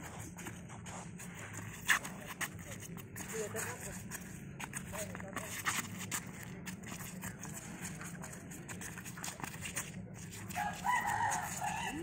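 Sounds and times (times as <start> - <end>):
rooster crowing: 10.5 - 12.0.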